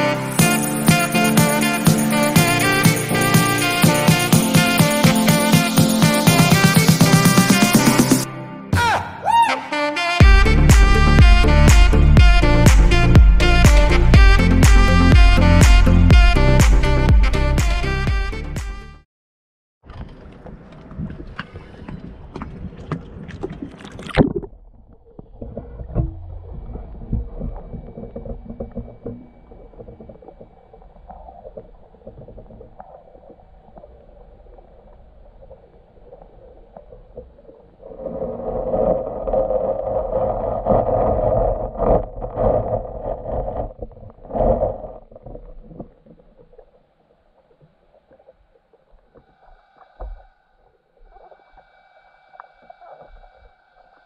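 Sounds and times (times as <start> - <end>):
underwater churning noise: 20.4 - 54.0.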